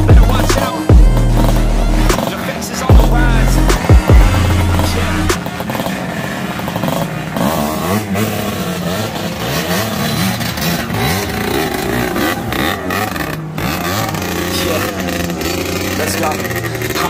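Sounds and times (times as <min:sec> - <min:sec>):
dirt bike engines revving: 0:00.0 - 0:17.0.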